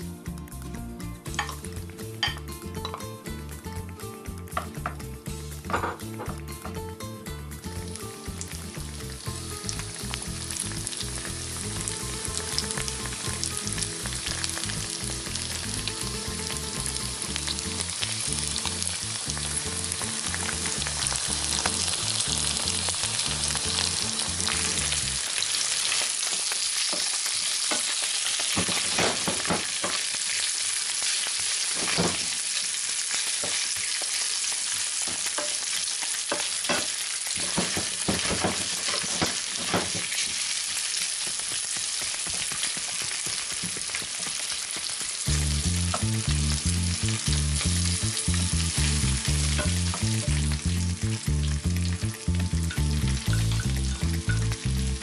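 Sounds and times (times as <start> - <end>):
low background music: 0.0 - 25.3, 45.2 - 55.0
sausage sizzling in a frying pan: 1.3 - 55.0
wooden spatula scraping a pan: 36.7 - 40.4.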